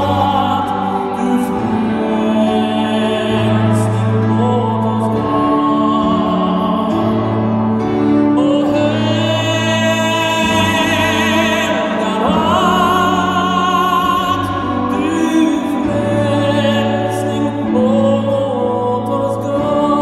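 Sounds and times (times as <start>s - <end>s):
acoustic guitar: 0.0s - 20.0s
man singing into a microphone: 0.0s - 20.0s
violin: 0.0s - 20.0s.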